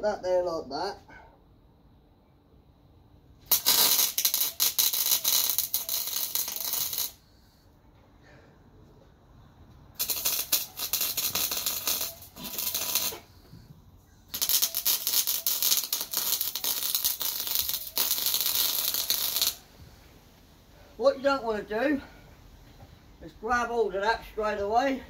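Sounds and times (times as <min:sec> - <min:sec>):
welder arc crackling: 0:03.4 - 0:07.2, 0:10.0 - 0:13.3, 0:14.3 - 0:19.7.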